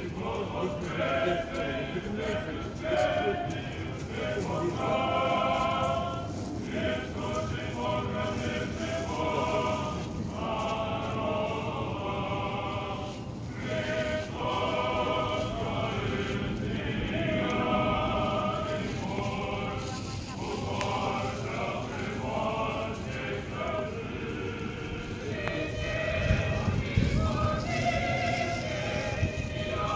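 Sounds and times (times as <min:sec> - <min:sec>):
choir singing liturgical chant: 0:00.0 - 0:29.9.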